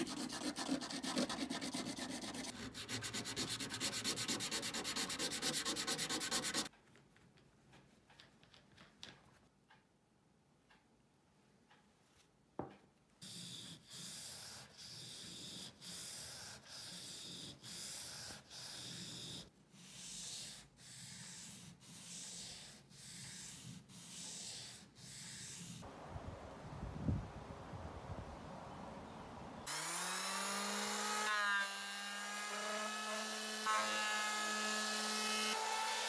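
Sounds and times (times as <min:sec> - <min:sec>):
blade rasping on whetstone: 0:00.0 - 0:06.7, 0:13.2 - 0:25.8.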